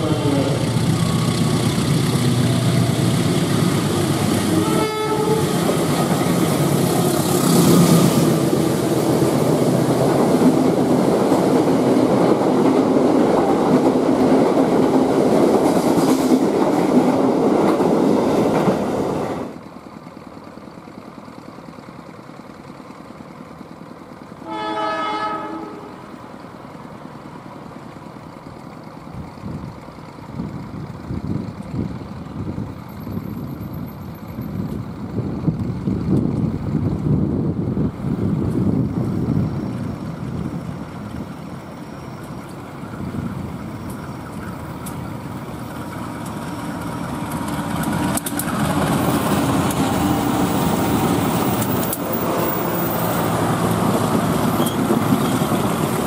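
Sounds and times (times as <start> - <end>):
distant multi-tone train horn: 0.0 - 0.7, 4.4 - 5.7, 24.4 - 26.2
train horn toot: 4.4 - 5.6, 24.4 - 26.1
train wheels clattering: 43.6 - 56.0.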